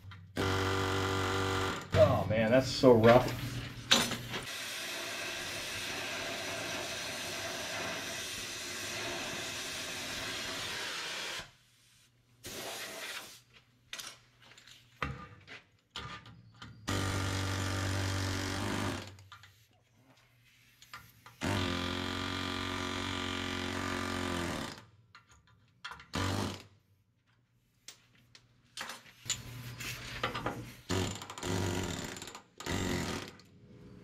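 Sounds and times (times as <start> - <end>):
cutting torch hissing: 4.4 - 11.6.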